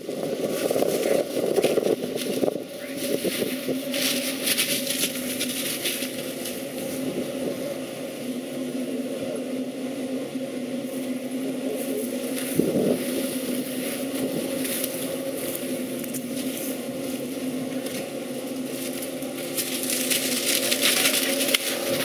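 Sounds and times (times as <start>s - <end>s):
engine humming: 0.0s - 22.0s
short crackles and scrapes: 0.4s - 7.0s, 12.3s - 22.0s.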